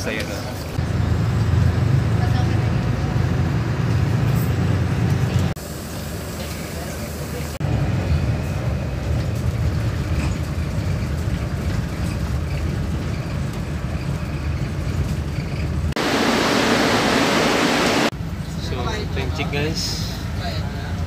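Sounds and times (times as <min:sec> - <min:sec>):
bus engine and tyres rumbling: 0:00.0 - 0:21.0
even rushing noise: 0:16.0 - 0:18.2.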